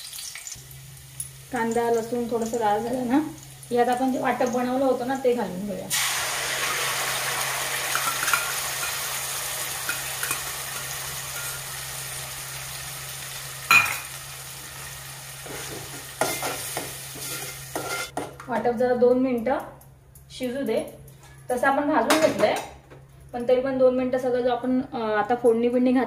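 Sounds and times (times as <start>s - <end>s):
paste sizzling in hot oil: 5.9s - 18.1s
spoon clinking against pot: 13.7s - 14.1s.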